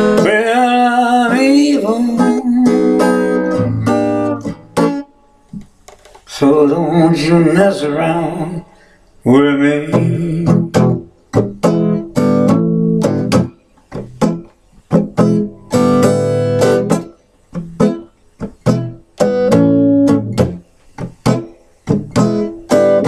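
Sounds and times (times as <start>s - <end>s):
guitar playing blues riff: 0.0s - 5.7s, 6.3s - 23.0s.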